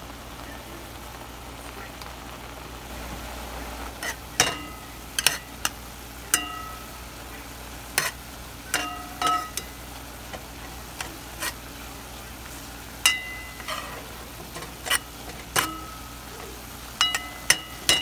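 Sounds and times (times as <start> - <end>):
meat sizzling: 0.0 - 18.0
metal spoon knocking on pot: 4.4 - 6.9, 8.0 - 10.4, 13.1 - 14.0, 15.3 - 16.1, 17.0 - 18.0.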